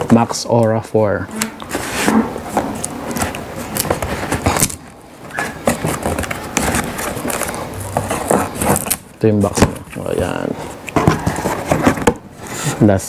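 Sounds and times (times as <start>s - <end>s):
scissors cutting packing tape: 2.8s - 9.1s.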